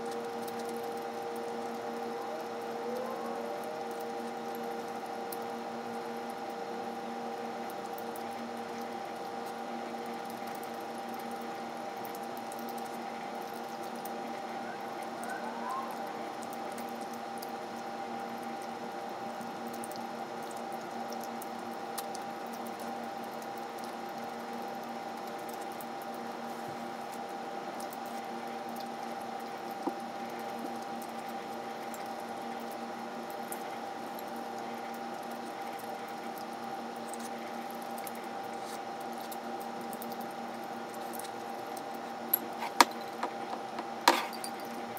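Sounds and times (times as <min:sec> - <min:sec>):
steady hum: 0:00.0 - 0:19.8, 0:26.2 - 0:44.9
soft chewing and squishing: 0:33.4 - 0:44.6.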